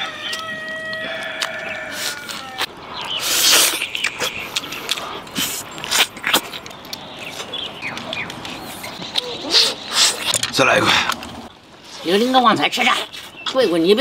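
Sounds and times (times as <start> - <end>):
wet smacking chewing: 0.2 - 11.4
loud slurp: 3.2 - 7.6, 8.7 - 11.3.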